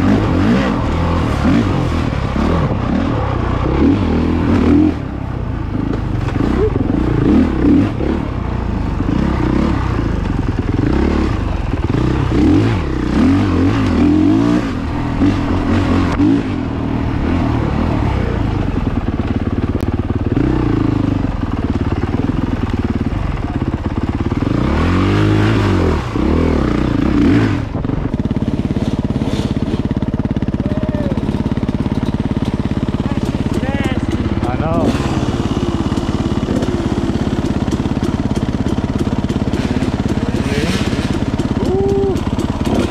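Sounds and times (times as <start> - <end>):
dirt bike engine revving: 0.0 - 42.9.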